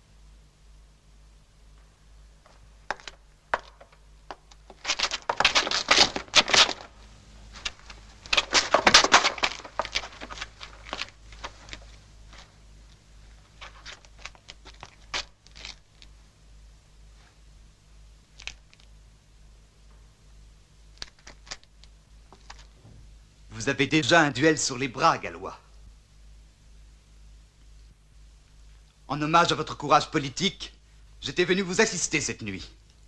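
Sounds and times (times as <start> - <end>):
steady low hum: 0.0 - 33.0
paper rustling and crinkling: 4.5 - 12.6, 13.4 - 16.1, 21.0 - 22.8.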